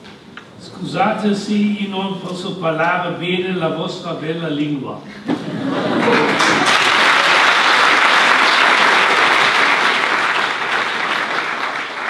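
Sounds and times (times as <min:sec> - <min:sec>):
audience applause: 0:05.7 - 0:12.0.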